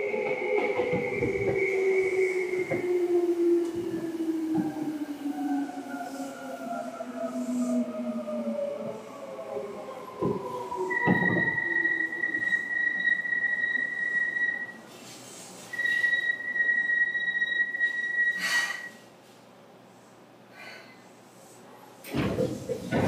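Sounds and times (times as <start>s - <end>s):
high steady whistling tone: 0.0s - 14.8s, 15.7s - 19.0s.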